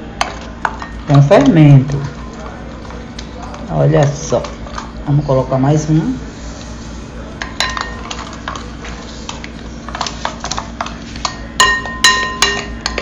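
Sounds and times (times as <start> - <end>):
metal spoon clinking against glass bowl: 7.6 - 8.2, 11.2 - 13.0.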